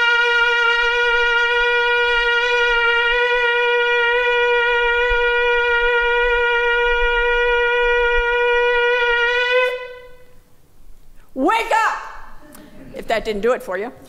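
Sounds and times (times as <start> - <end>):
ram's horn blown in long note: 0.0 - 10.4.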